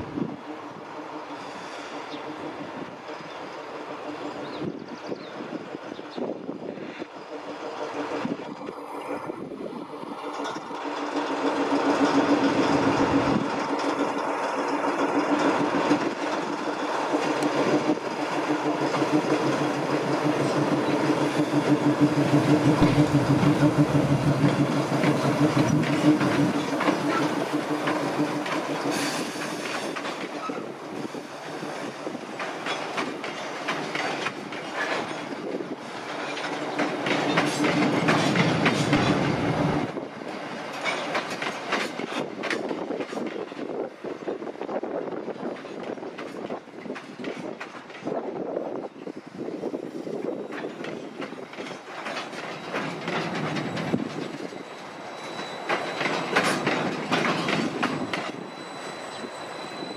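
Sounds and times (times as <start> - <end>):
diesel locomotive engine humming: 0.0 - 46.8
wagon wheels clicking over rail joints: 32.2 - 39.8, 40.4 - 43.7, 50.4 - 58.4.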